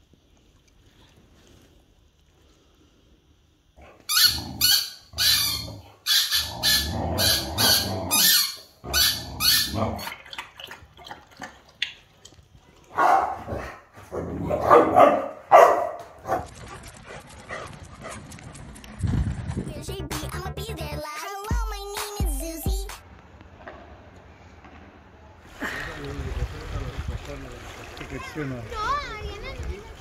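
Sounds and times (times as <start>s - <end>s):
dog lapping water: 9.6s - 13.5s
dog barking: 12.9s - 16.5s.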